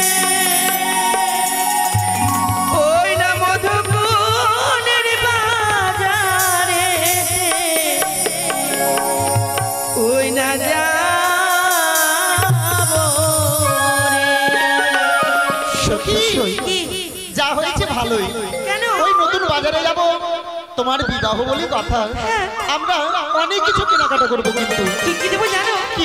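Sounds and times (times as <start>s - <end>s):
person singing ornamented melody: 0.0s - 17.3s
hand drum beat: 6.5s - 10.4s.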